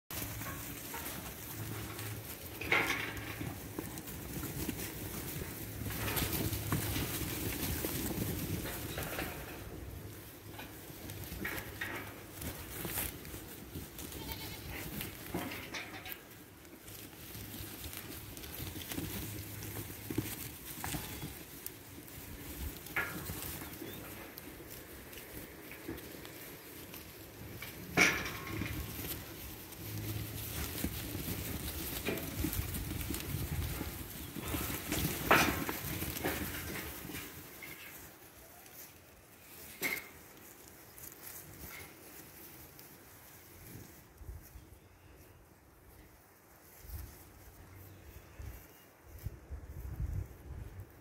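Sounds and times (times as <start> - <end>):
sheep hooves trampling: 0.1 - 51.0
lambs bleating: 14.0 - 15.0.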